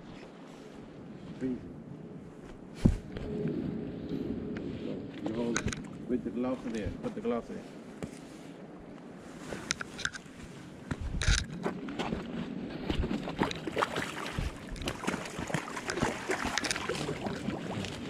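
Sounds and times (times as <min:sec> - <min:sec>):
water sloshing and splashing: 0:09.6 - 0:18.0.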